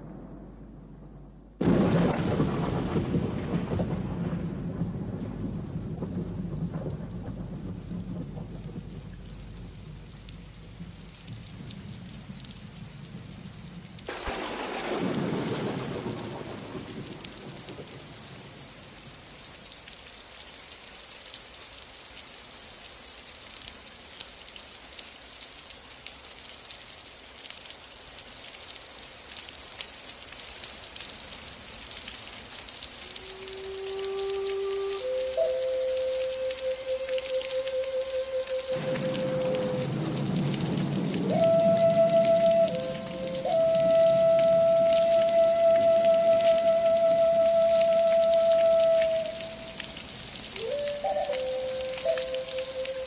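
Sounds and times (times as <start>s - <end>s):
thunder rolling: 0.0s - 18.2s, 38.6s - 52.4s
thunder clap: 0.0s - 18.4s, 38.7s - 52.5s
steady rain: 0.0s - 53.0s.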